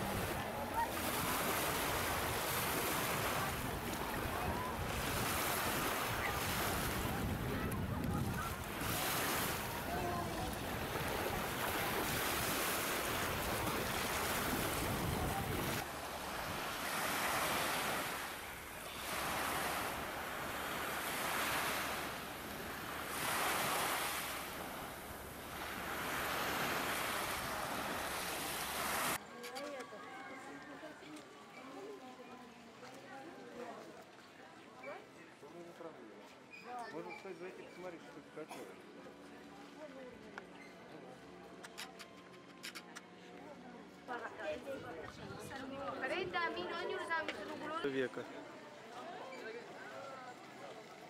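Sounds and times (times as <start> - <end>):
sea surf washing: 0.0 - 29.2
wind buffeting microphone: 3.3 - 9.0, 13.0 - 15.8.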